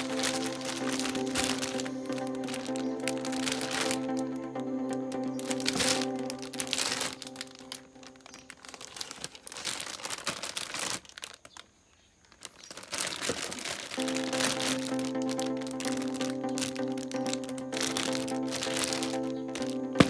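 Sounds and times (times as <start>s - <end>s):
music with sustained chords: 0.0s - 8.7s, 14.0s - 20.0s
plastic bag crinkling: 0.0s - 20.0s.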